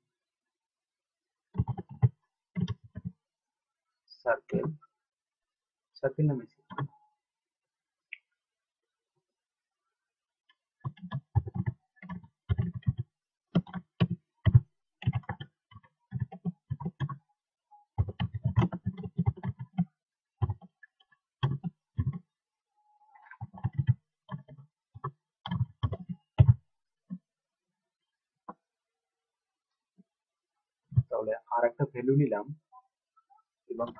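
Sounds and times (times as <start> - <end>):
typing on a keyboard: 1.6 - 3.1, 10.8 - 17.2, 18.0 - 22.2, 23.3 - 26.6.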